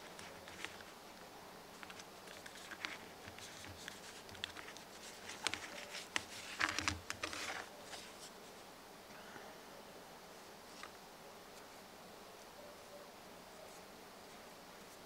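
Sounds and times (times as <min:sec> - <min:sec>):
hands handling wires: 0:00.0 - 0:01.0, 0:01.7 - 0:08.4.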